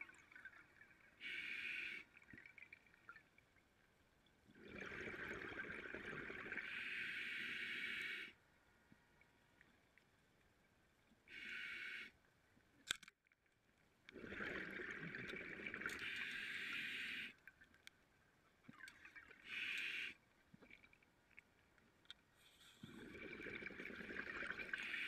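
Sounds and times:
scuba regulator breathing underwater: 6.6 - 8.4, 16.0 - 17.4, 19.4 - 20.1.

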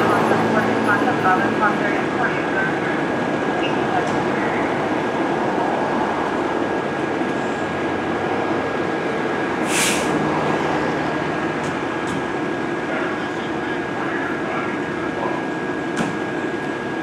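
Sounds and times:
diesel engine idling: 0.0 - 17.0
air hiss burst: 9.6 - 10.1.

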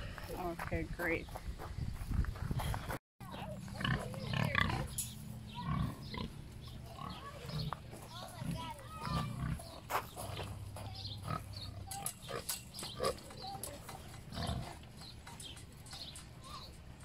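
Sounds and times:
pigs grunting: 3.4 - 15.4.

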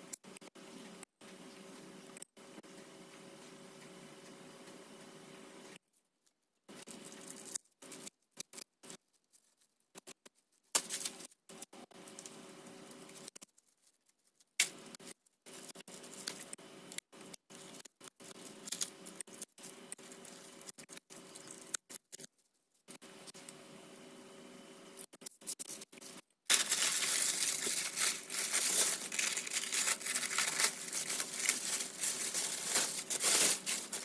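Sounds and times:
masking paper and tape tearing: 25.2 - 34.0.

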